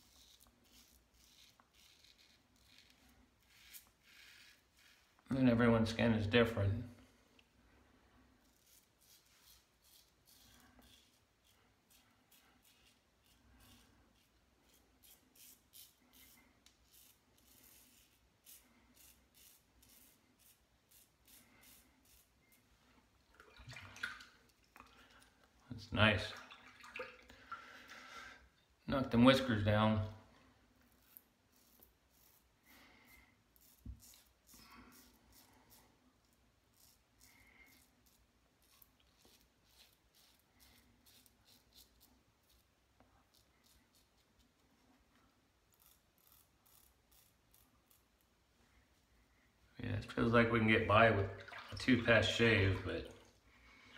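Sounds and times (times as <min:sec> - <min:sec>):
razor scraping stubble: 0:00.0 - 0:05.3, 0:08.5 - 0:22.6, 0:45.7 - 0:48.3.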